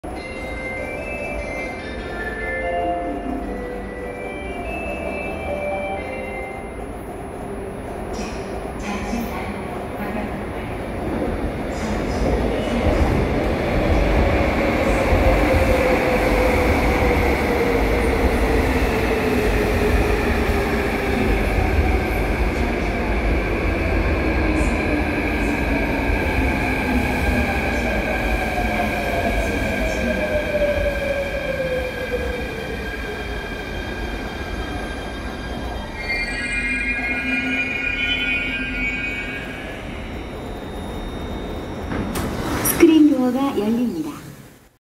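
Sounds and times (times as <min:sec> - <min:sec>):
train wheels rumbling on rails: 0:06.8 - 0:35.8.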